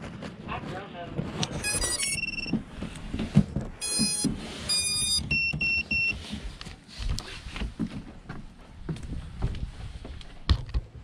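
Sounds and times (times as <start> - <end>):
drone startup beeps: 1.6 - 2.6, 3.8 - 6.2.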